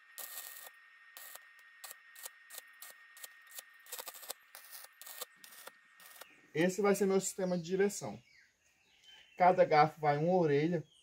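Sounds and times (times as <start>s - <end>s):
electric arc weld crackle: 0.0s - 6.3s.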